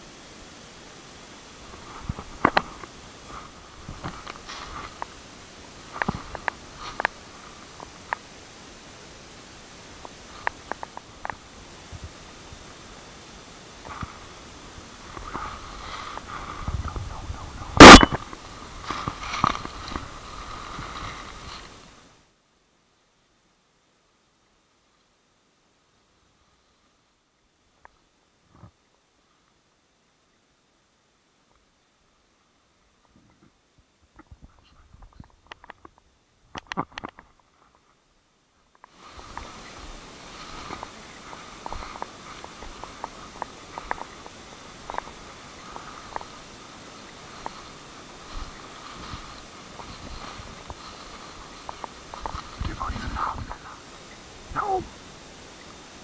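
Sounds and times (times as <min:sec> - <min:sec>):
dry leaves crackling: 0:01.6 - 0:22.2, 0:39.0 - 0:56.0
footsteps through dry leaves: 0:17.8 - 0:22.0, 0:39.0 - 0:53.7.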